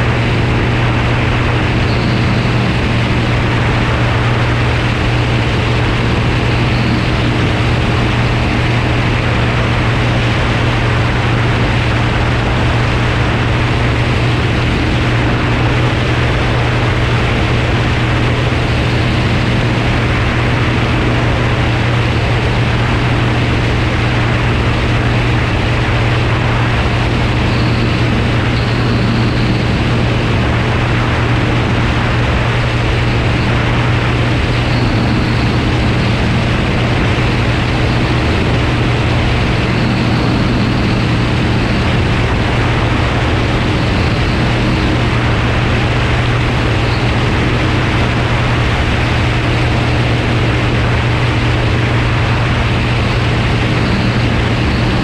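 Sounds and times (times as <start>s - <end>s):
propeller engine drone: 0.0s - 55.0s
rush of air on camera: 0.0s - 55.0s.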